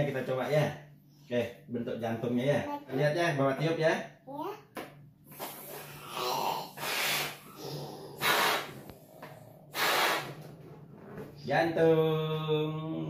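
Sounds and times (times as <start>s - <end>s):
man puffing into a balloon: 5.3s - 11.2s.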